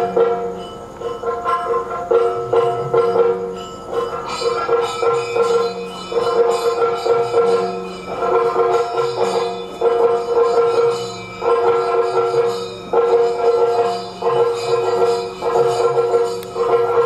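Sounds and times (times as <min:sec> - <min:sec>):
jingling metal percussion: 0:00.0 - 0:17.0
steady drone: 0:00.0 - 0:17.0.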